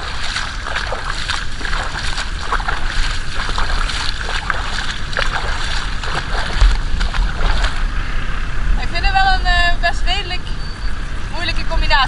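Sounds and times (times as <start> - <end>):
footsteps splashing through water: 0.0 - 7.9
wind rumble on microphone: 0.0 - 12.0.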